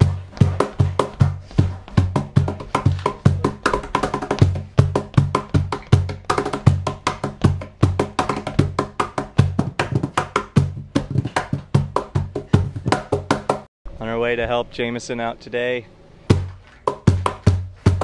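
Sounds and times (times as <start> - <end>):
cajon drumming: 0.0 - 13.7, 16.3 - 18.0.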